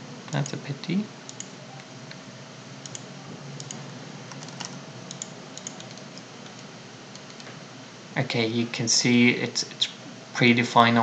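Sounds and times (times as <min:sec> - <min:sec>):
computer keyboard tapping: 0:03.6 - 0:07.5.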